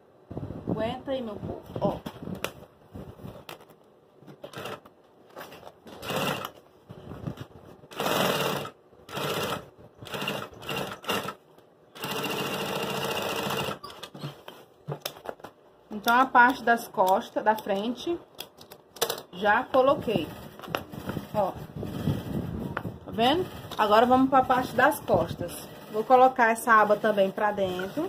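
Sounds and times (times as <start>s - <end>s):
industrial sewing machine stitching: 6.0s - 6.5s, 7.9s - 11.4s, 12.0s - 13.8s.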